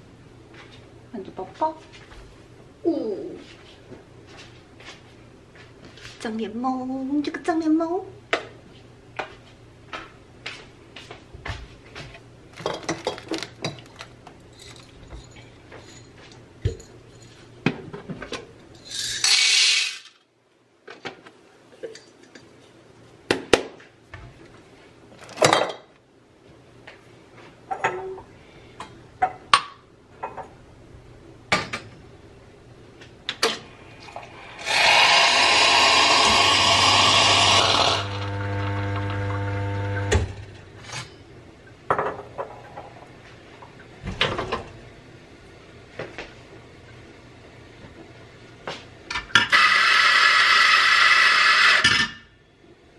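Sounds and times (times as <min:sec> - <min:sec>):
espresso machine humming: 0:34.1 - 0:40.3.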